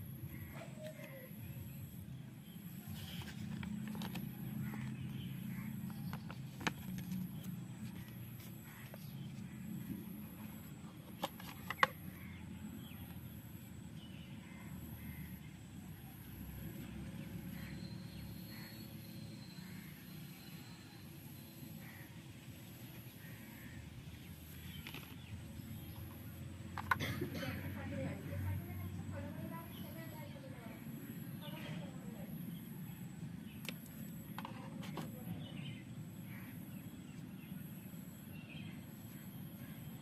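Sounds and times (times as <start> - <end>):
faint bird calls: 0.2 - 1.9, 17.5 - 21.0, 21.7 - 26.1, 32.5 - 40.0.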